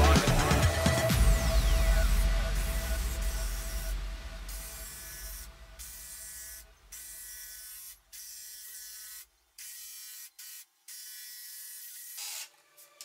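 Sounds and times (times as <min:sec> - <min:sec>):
electric jigsaw cutting plastic: 0:11.0 - 0:13.0.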